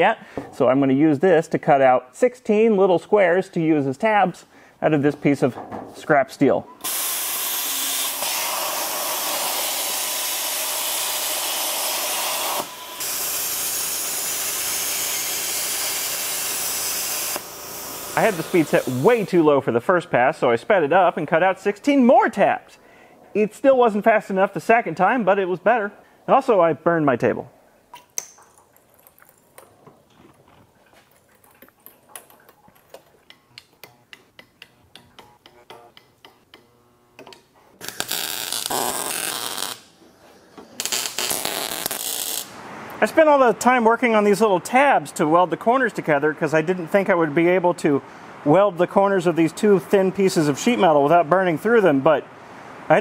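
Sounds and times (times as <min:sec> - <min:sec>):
plasma cutter hissing: 0:06.8 - 0:19.4.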